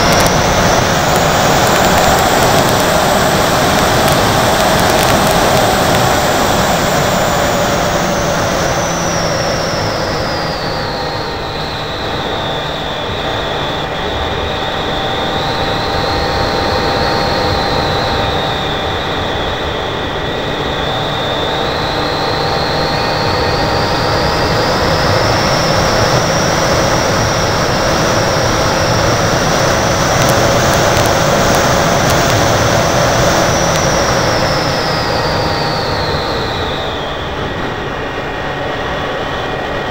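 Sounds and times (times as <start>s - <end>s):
high motor whine: 0.0s - 39.9s
wind rush: 0.0s - 39.9s.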